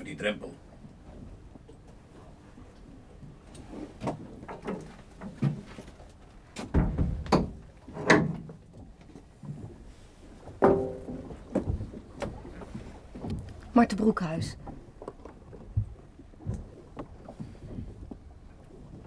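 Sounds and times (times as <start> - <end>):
knocks: 10.6 - 11.8.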